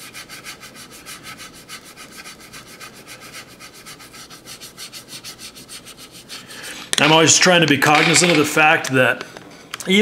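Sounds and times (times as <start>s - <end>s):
paintbrush scrubbing on plastic: 0.0s - 6.8s.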